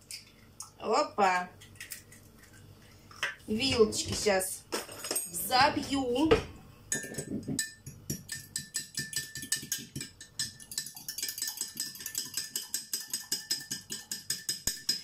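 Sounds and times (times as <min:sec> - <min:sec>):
fork tapping against cup: 0:06.9 - 0:15.0.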